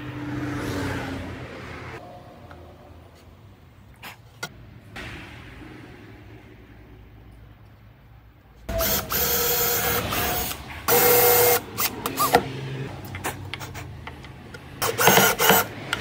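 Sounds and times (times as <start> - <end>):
drill driving screws into wood: 8.7 - 12.4, 14.8 - 15.8.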